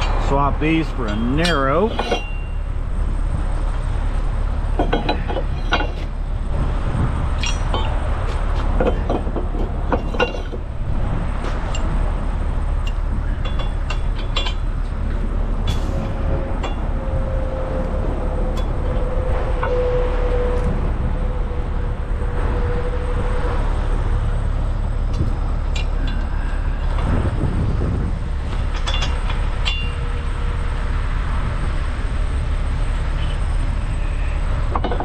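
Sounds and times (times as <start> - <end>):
low engine rumble: 0.0 - 35.0
steady whine: 0.0 - 35.0
steel parts clinking and knocking: 1.0 - 2.7, 4.7 - 6.2, 7.4 - 10.7, 12.8 - 17.0, 25.1 - 27.1, 28.5 - 30.2, 34.7 - 35.0.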